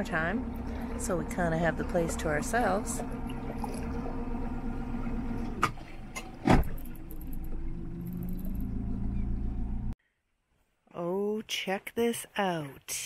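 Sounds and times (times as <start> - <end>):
boat engine running: 0.0 - 10.0.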